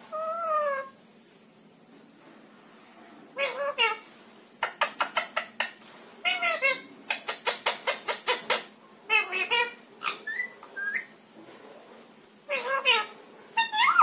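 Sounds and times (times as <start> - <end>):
parakeet squawking and chattering: 3.4 - 4.0, 4.6 - 11.2, 12.5 - 14.0.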